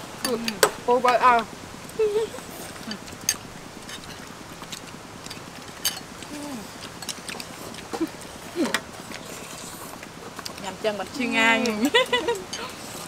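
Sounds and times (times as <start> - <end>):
utensils clinking on ceramic bowls: 5.8 - 6.2.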